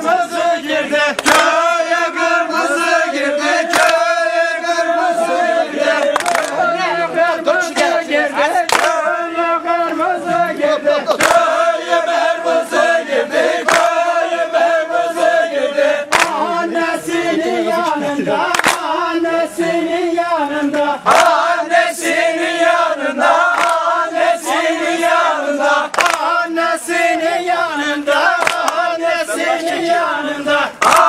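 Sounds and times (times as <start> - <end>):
men singing in unison: 0.0 - 31.0.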